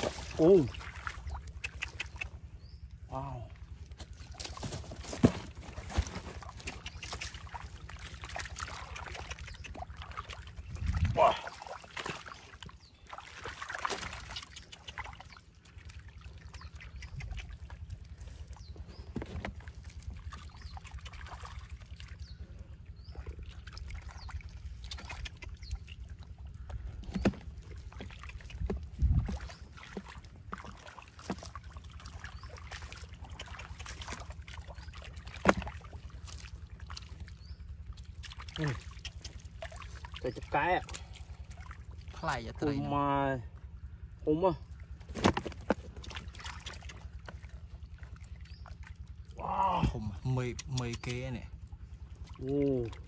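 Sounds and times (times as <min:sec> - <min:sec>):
splats and slaps: 0:00.0 - 0:02.4, 0:03.9 - 0:18.1, 0:19.1 - 0:22.2, 0:23.6 - 0:26.1, 0:27.0 - 0:42.2, 0:45.0 - 0:48.8
hands squelching through mud: 0:00.0 - 0:02.6, 0:03.6 - 0:22.5, 0:23.1 - 0:42.4, 0:44.7 - 0:51.2
steady low rumble: 0:00.0 - 0:53.0.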